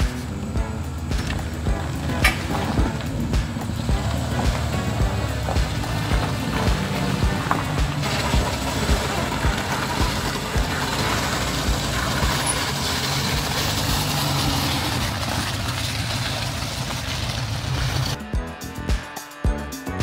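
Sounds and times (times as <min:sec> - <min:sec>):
dull low thumps: 0:00.0 - 0:12.4
car engine running: 0:00.0 - 0:18.2.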